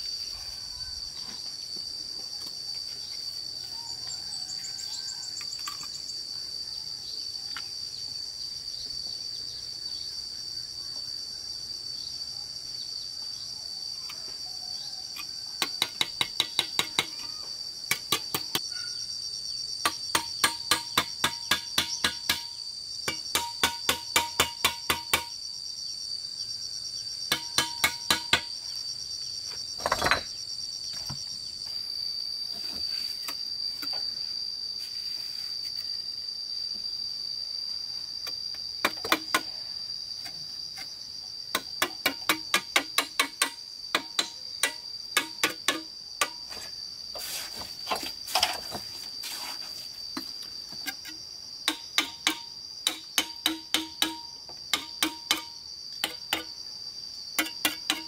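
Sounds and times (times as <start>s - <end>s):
high insect trill: 0.0s - 58.0s
sharp tool strikes: 17.9s - 18.6s, 19.8s - 25.4s, 27.3s - 28.5s, 38.8s - 39.5s, 41.5s - 46.5s, 51.7s - 56.5s, 57.4s - 58.0s.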